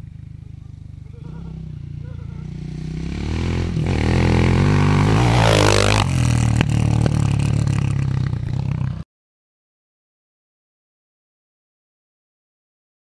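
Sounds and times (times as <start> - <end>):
dirt bike engine revving: 0.0 - 9.0.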